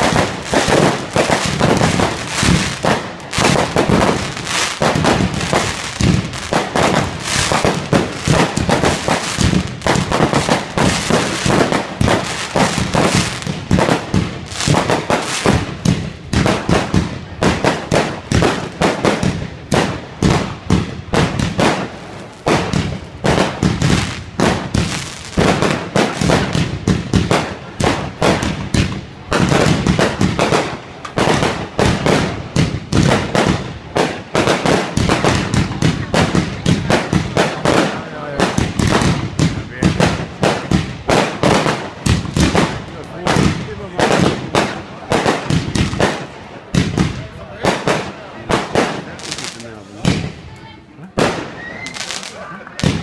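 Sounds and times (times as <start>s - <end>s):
fireworks bursting with bangs and crackles: 0.0s - 53.0s.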